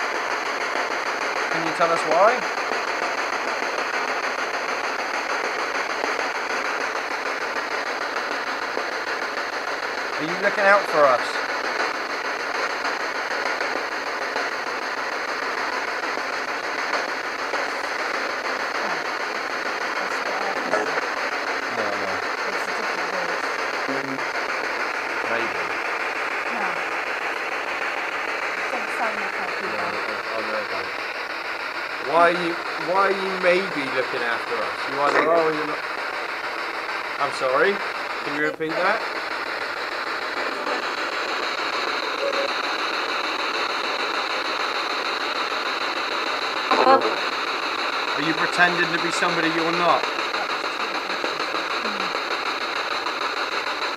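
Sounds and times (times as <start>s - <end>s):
steady hiss: 0.0s - 53.9s
faint low voice: 23.9s - 24.2s, 46.7s - 47.2s.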